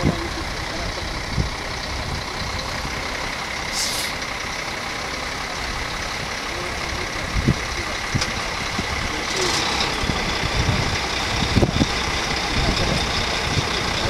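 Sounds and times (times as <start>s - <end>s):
diesel fire engines idling: 0.0s - 14.0s
air brakes hiss: 3.7s - 4.2s.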